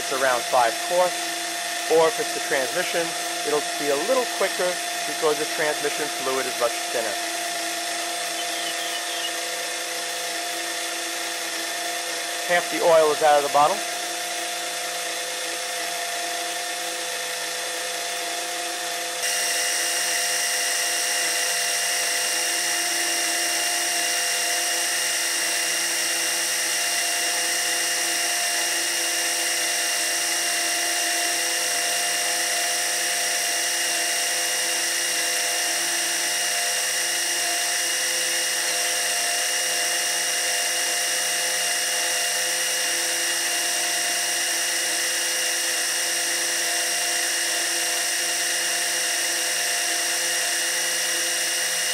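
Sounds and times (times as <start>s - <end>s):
electric pump whining hum: 0.0s - 51.9s.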